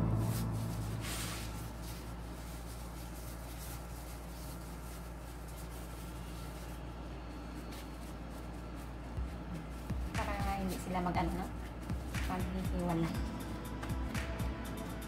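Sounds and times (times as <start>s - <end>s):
plastic gloves rustling: 0.0s - 13.6s
steady low hum: 0.0s - 15.0s.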